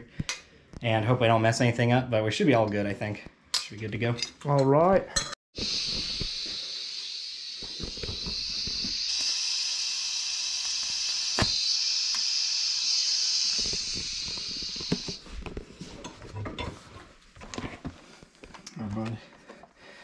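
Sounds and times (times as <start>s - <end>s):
gas hissing from welding torch: 5.6s - 15.2s.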